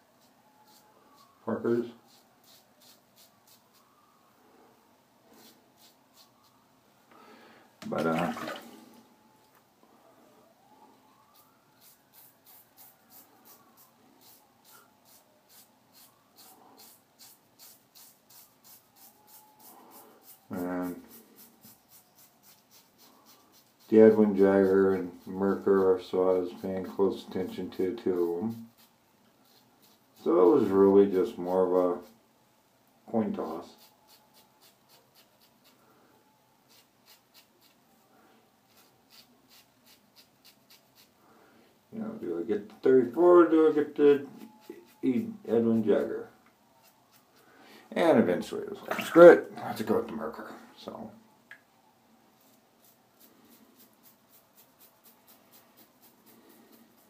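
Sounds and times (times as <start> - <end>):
razor scraping stubble: 11.3 - 32.1, 33.3 - 35.8, 36.7 - 37.8, 38.7 - 41.2, 43.0 - 46.2, 46.8 - 47.4, 52.4 - 57.0.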